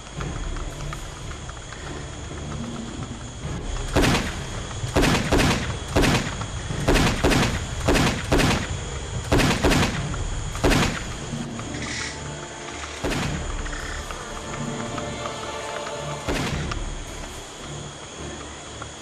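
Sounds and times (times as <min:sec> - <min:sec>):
rifle shots: 0:03.8 - 0:11.2, 0:13.0 - 0:13.6, 0:16.3 - 0:16.8.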